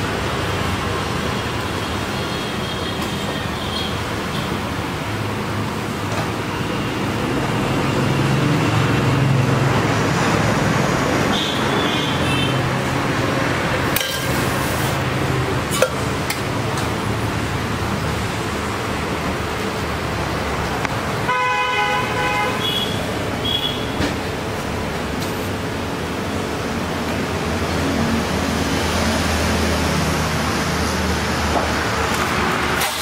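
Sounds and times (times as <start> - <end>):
street traffic rumble: 0.0 - 33.0
vehicle horn honking: 11.3 - 12.6, 21.2 - 24.0.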